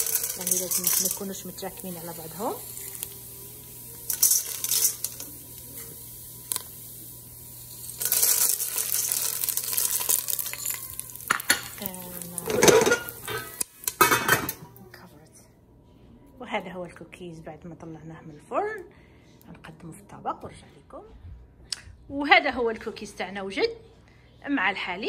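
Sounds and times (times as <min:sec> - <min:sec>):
popcorn kernels rattling in pot: 0:00.0 - 0:14.4
oil sizzling: 0:00.0 - 0:14.8.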